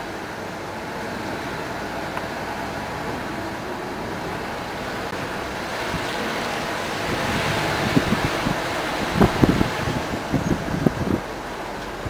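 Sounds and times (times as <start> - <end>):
car road noise: 0.0 - 12.0
wind on microphone: 5.1 - 12.0.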